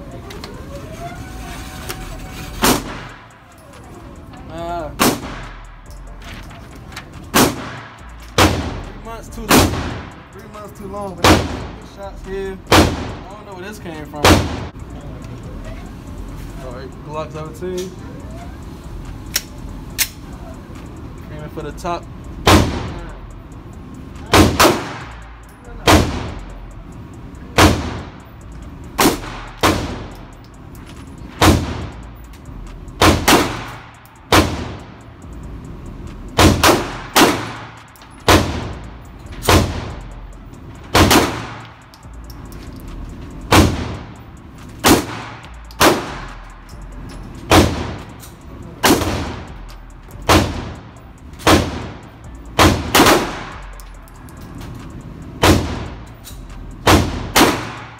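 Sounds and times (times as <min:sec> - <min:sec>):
pistol shots echoing indoors: 0:09.5 - 0:10.2, 0:12.7 - 0:13.2, 0:33.0 - 0:34.8, 0:36.4 - 0:38.7, 0:40.9 - 0:41.8, 0:56.8 - 0:57.9.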